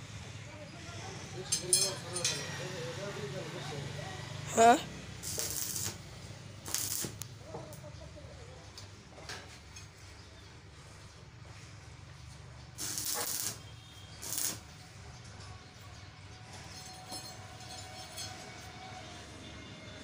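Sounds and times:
hissing welding arc: 0:05.2 - 0:07.4, 0:12.8 - 0:14.8.

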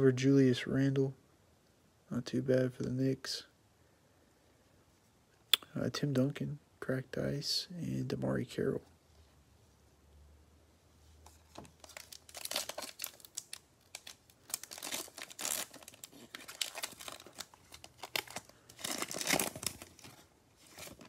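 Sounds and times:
foil wrapper crinkling and tearing: 0:11.5 - 0:21.0.

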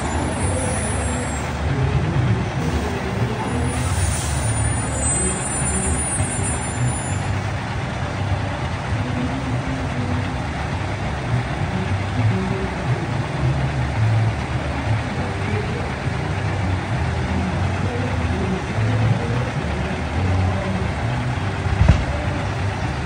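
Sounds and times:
truck engine running: 0:00.0 - 0:23.0.

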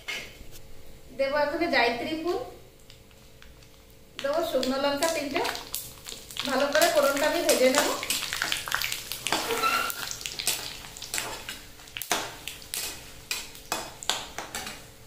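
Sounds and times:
spices sizzling in hot oil: 0:02.9 - 0:15.0
metal spatula scraping a pan: 0:09.2 - 0:11.5.

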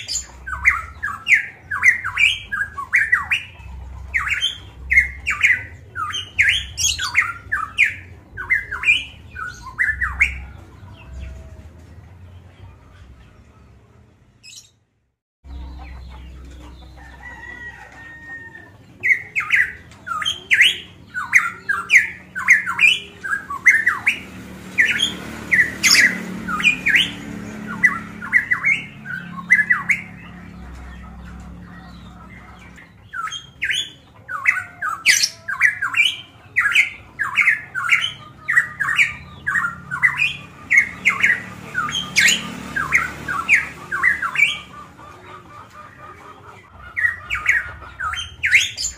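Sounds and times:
bird whistling calls: 0:00.0 - 0:10.5.

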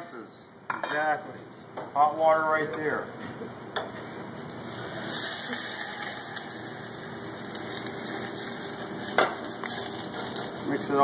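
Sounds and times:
water hissing in hot pan: 0:04.6 - 0:11.0.

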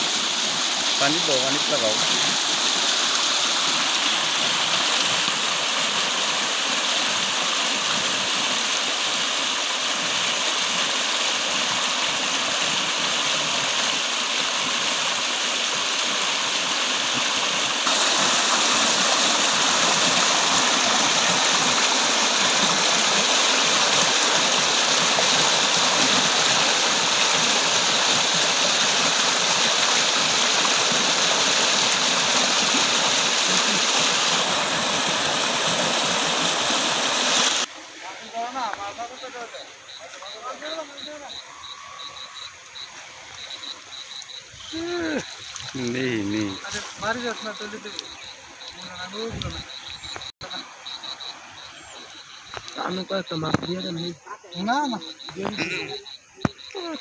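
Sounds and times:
water rushing through net: 0:00.0 - 0:38.5.

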